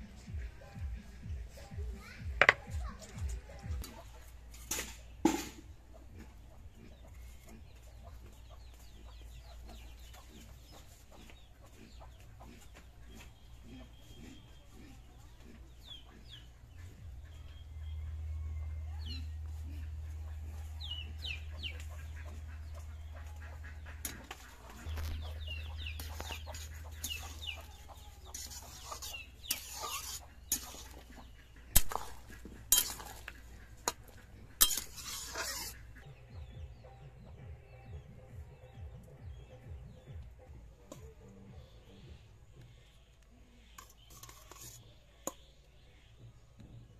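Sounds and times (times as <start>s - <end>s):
chickens clucking: 0.0s - 46.9s
metal spatula scraping stone: 2.4s - 2.6s, 23.7s - 36.0s, 43.7s - 45.5s.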